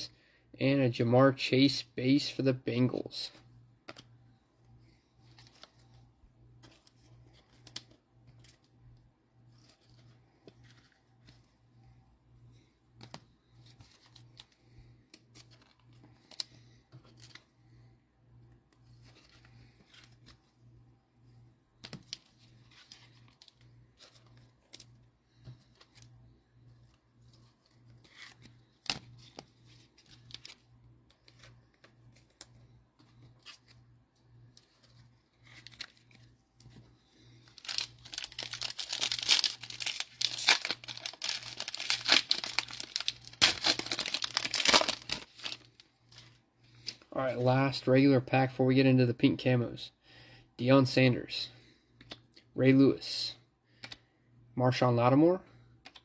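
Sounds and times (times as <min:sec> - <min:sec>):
cards clicking and rustling: 0:03.8 - 0:04.2, 0:06.6 - 0:08.8, 0:12.9 - 0:17.5, 0:21.8 - 0:26.1, 0:26.8 - 0:33.8, 0:34.4 - 0:47.0, 0:53.8 - 0:54.0
foil wrapper tearing and crinkling: 0:37.5 - 0:45.8.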